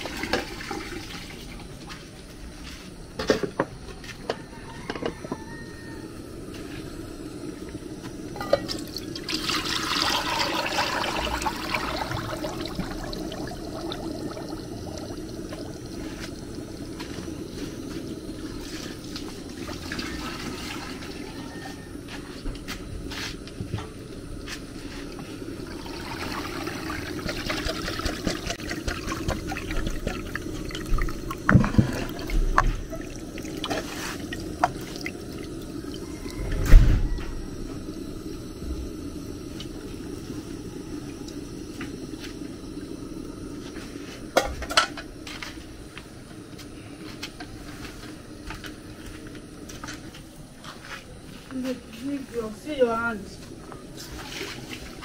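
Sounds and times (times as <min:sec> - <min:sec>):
thick liquid pouring and splashing: 0:08.8 - 0:17.7, 0:25.6 - 0:35.7.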